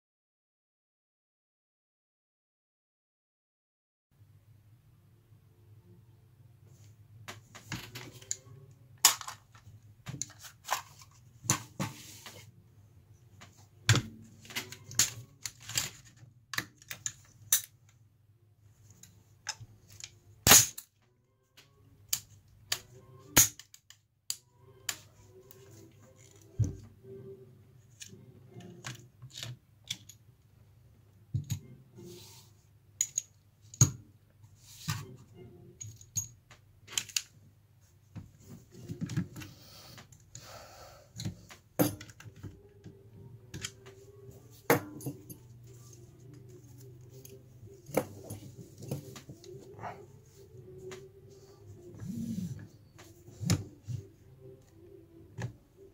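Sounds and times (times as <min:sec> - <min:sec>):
rifle parts clicking and clacking: 0:33.0 - 0:34.0.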